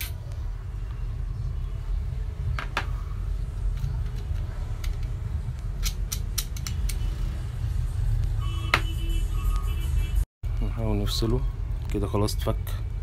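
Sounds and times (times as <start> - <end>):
metal parts clicking and tapping: 3.6 - 7.1.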